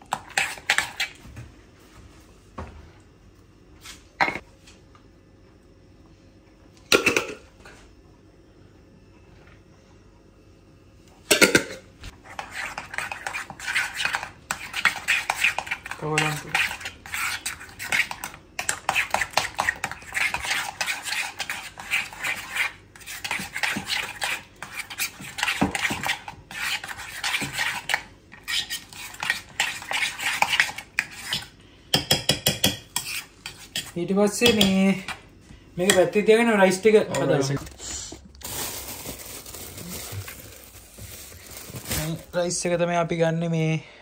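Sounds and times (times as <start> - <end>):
spoon scraping a bowl: 0.0 - 1.2, 12.2 - 34.9.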